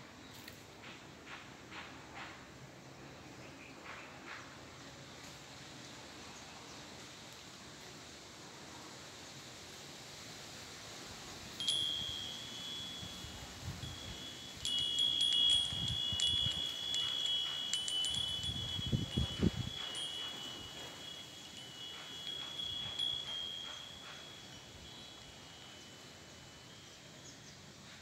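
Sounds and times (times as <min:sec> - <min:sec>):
wind chime clinking: 0:11.6 - 0:27.5.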